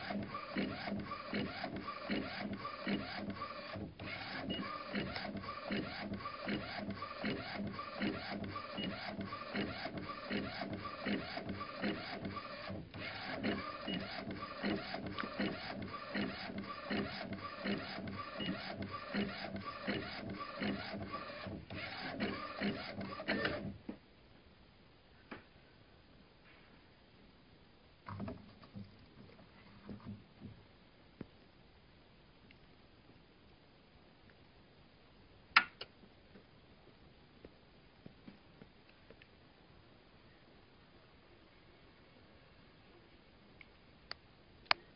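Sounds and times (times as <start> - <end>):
printing machine clattering: 0.0 - 23.8.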